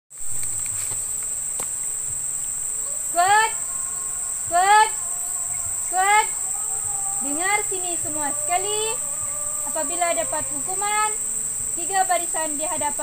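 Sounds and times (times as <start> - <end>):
insects droning: 0.1 - 13.0.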